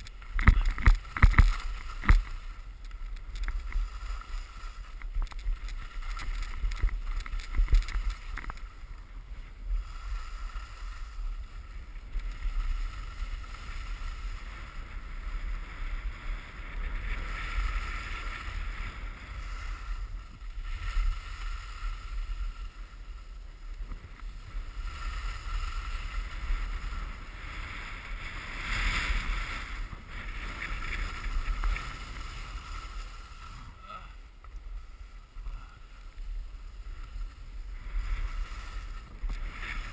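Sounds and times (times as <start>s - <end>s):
wind buffeting microphone: 0.0s - 8.9s
skis scraping over snow: 0.0s - 39.9s.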